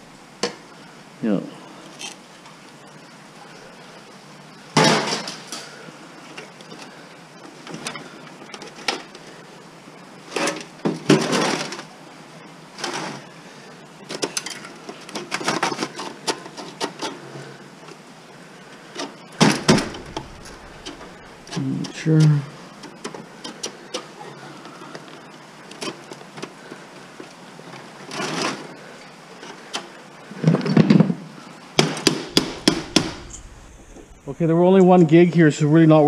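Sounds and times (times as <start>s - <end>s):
metal computer case clanking: 19.7s - 21.6s.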